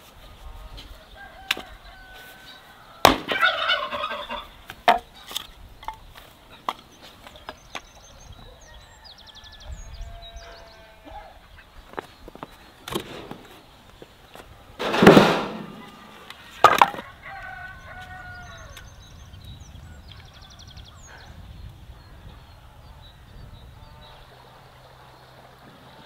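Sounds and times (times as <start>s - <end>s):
chickens clucking: 0.4s - 8.8s, 14.8s - 18.1s
sharp knock: 14.8s - 15.8s.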